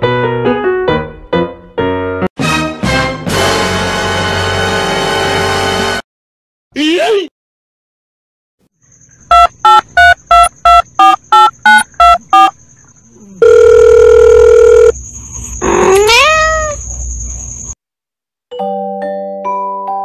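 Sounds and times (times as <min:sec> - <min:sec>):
long steady phone tone: 0:09.3 - 0:12.5, 0:13.4 - 0:15.0
telephone keypad tones: 0:09.3 - 0:12.5, 0:13.4 - 0:15.0
cat meowing: 0:15.7 - 0:16.8.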